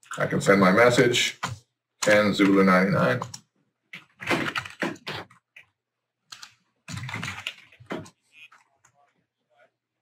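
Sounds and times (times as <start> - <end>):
typing on computer keyboard: 1.4 - 5.7, 6.3 - 8.7.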